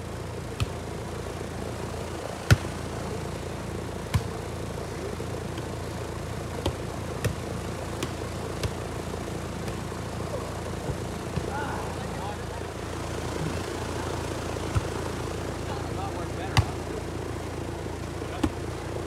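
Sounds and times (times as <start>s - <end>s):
low background hum: 0.0s - 19.0s
hands slapping volleyball: 0.6s - 0.8s, 2.4s - 2.8s, 4.1s - 4.4s, 5.5s - 5.8s, 6.6s - 8.9s, 9.6s - 10.0s, 10.8s - 11.6s, 14.6s - 15.0s, 16.6s - 16.8s, 18.3s - 18.6s.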